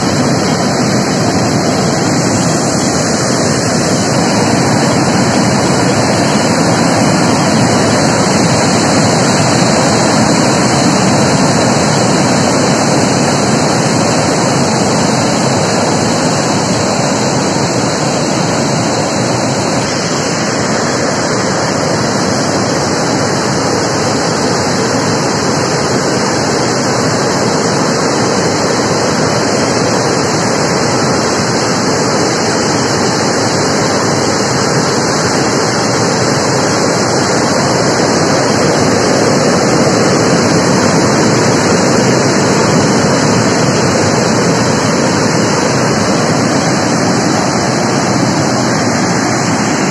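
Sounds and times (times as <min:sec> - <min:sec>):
floodwater rushing over weir: 0:00.0 - 0:49.9.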